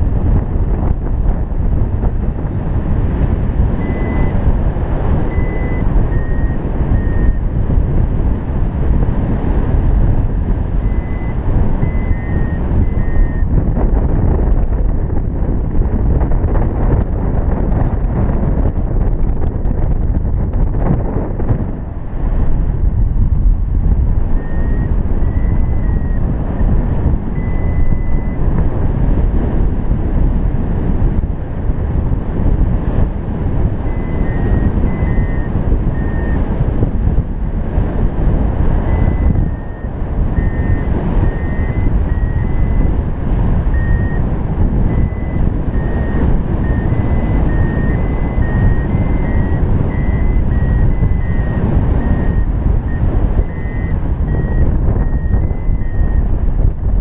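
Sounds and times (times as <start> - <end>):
wind noise on microphone: 0.0 - 57.0
electronic beeps: 3.8 - 4.4, 5.2 - 7.4, 10.8 - 13.5, 20.9 - 21.4, 24.4 - 26.2, 27.4 - 28.4, 33.9 - 36.4, 38.8 - 42.9, 43.7 - 44.2, 44.9 - 56.2.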